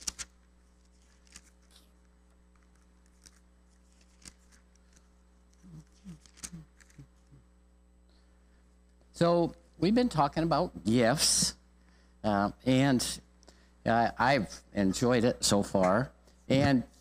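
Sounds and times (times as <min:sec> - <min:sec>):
paper pages rustling: 0:00.0 - 0:07.2
low room hum: 0:00.0 - 0:17.0.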